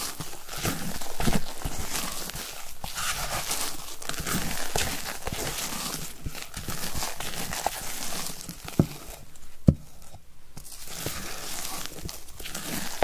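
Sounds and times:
spatula scraping batter in glass bowl: 0.1 - 9.1, 10.9 - 13.0.

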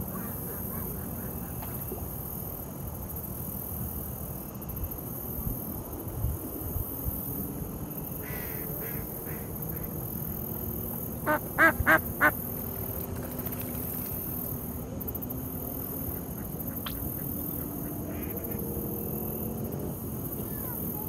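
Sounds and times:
duck quacking: 11.2 - 12.3.

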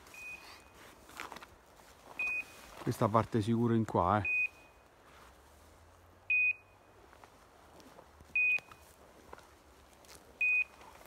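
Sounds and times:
short high beep: 0.1 - 0.7, 2.2 - 2.6.

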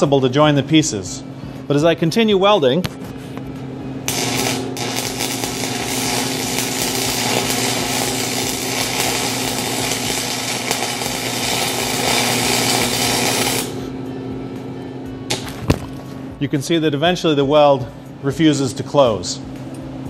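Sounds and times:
welding arc crackling and sizzling: 4.1 - 13.9.

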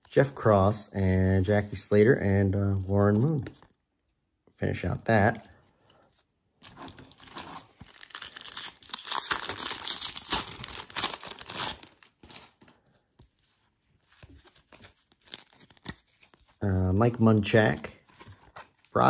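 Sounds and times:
cards rustling and clicking: 5.8 - 19.0
foil pack tearing and crinkling: 7.0 - 12.6.

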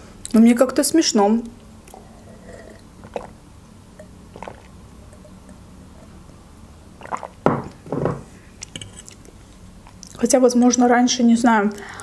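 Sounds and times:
person swallowing water: 1.9 - 3.4, 4.3 - 4.8, 7.0 - 7.8.

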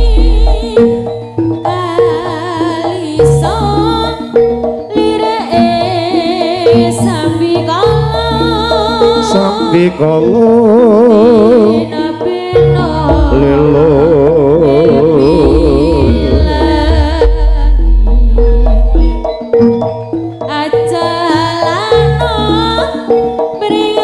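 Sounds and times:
deep drum and bass: 0.0 - 1.1, 12.6 - 20.0
vibrato melody: 0.0 - 24.0.

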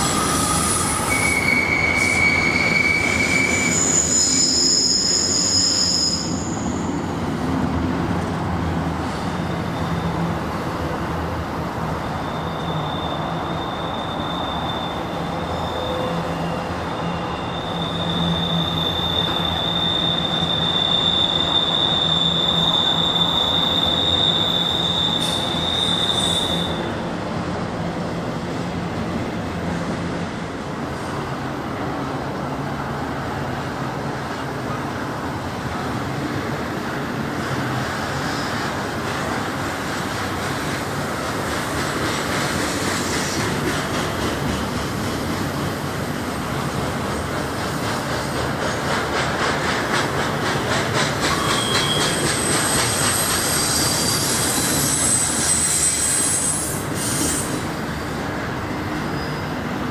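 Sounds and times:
high-pitched wheel squeal: 0.0 - 6.9, 12.0 - 27.0, 51.2 - 57.8, 59.0 - 59.6
train cars rolling past: 0.0 - 59.9.

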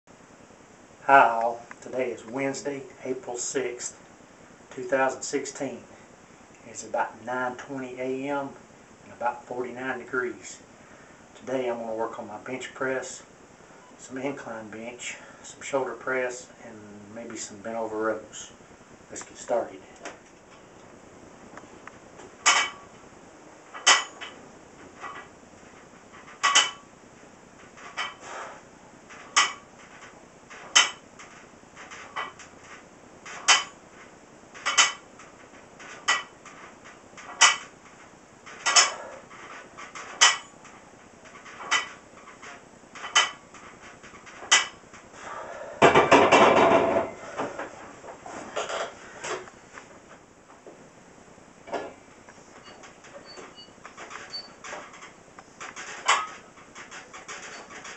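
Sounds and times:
barbell clinking and rattling: 22.4 - 22.9, 23.7 - 24.4, 26.1 - 26.9, 27.7 - 28.2, 29.1 - 33.8, 34.6 - 37.8, 38.5 - 45.1.

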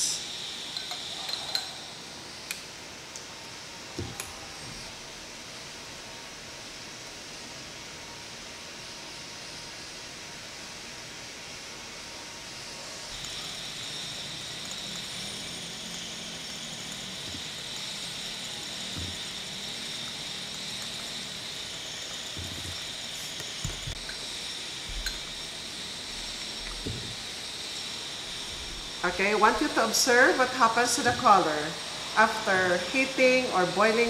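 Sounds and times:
water boiling and bubbling: 12.6 - 32.8.

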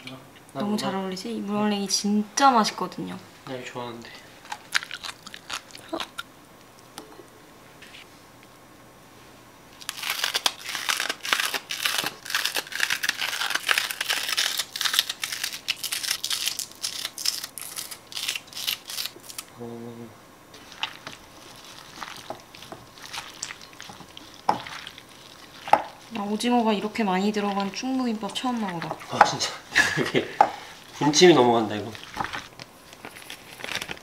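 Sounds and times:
rustling and clicking of mixing: 20.5 - 34.0.

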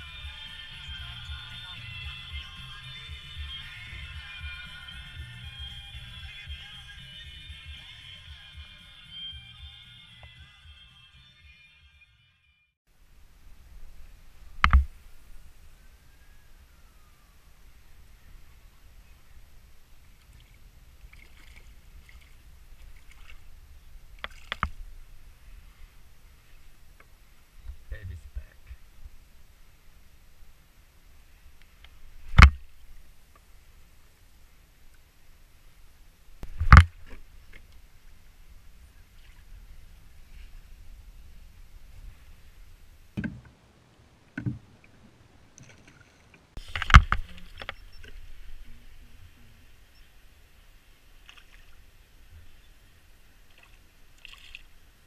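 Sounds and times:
low wind: 0.0 - 10.1, 12.9 - 55.0
water noise: 12.9 - 55.0
sharp clicks and knocks: 14.6 - 14.9, 46.6 - 47.8
knocks and thumps on plastic kayak: 36.4 - 37.2, 43.2 - 43.6, 44.4 - 44.7
fish splashing at the surface: 53.5 - 54.7.

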